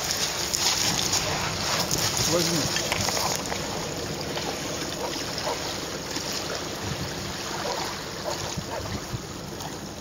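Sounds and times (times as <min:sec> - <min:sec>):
small waves lapping: 0:00.0 - 0:10.0
wind on microphone: 0:06.8 - 0:09.4.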